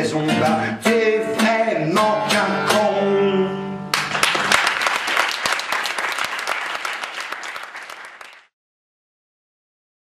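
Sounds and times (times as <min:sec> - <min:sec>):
audience applauding: 0:03.9 - 0:08.5.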